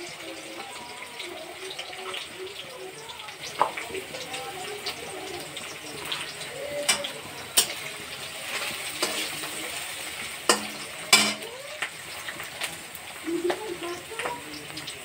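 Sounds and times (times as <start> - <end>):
onions sizzling in oil: 0.0 - 15.0
spatula knocking against pan: 10.5 - 11.5.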